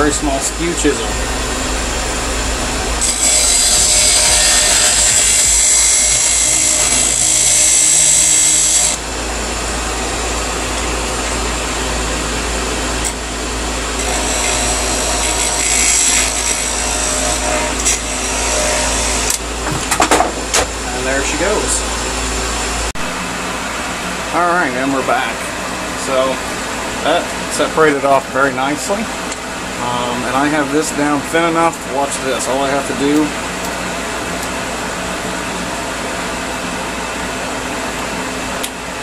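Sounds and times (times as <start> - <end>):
lathe motor hum: 0.0 - 19.7.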